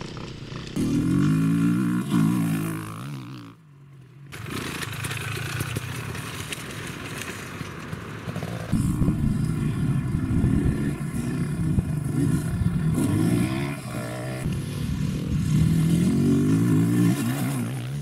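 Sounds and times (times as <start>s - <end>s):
dirt bike engine revving: 0.0s - 3.6s, 8.2s - 18.0s.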